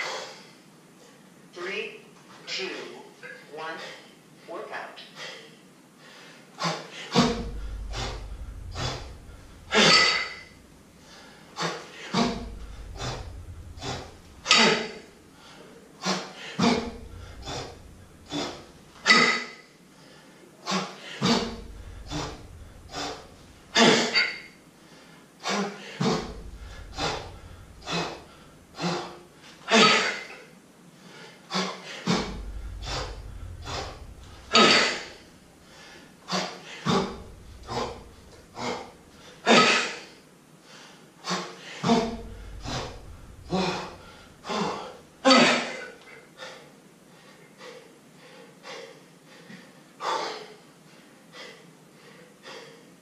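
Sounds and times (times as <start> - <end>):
man breathing hard: 6.0 - 19.0, 24.8 - 29.2, 46.3 - 53.0
forceful exhale: 6.0 - 19.3, 20.0 - 29.5, 31.0 - 39.6, 40.7 - 45.1.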